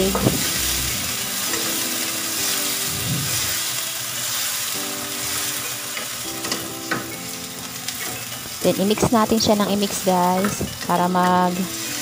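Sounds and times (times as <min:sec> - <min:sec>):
vegetables sizzling in a wok: 0:00.0 - 0:12.0.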